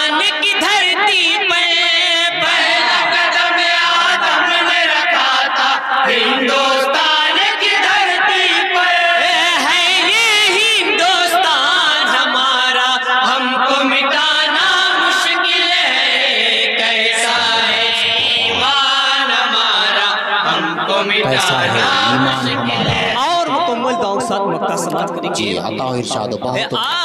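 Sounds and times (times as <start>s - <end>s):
men singing in unison: 0.0s - 23.2s.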